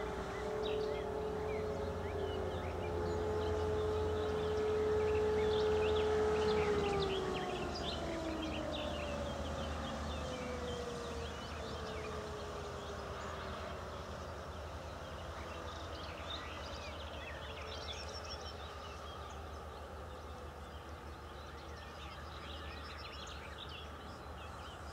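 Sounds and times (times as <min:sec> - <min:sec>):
siren winding down: 0:00.0 - 0:12.4
birds chirping: 0:00.0 - 0:24.9.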